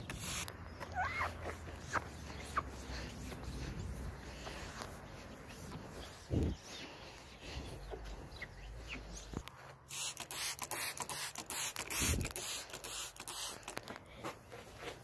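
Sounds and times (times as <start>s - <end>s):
spray bottle hissing bursts: 0.0s - 3.0s, 9.9s - 13.8s.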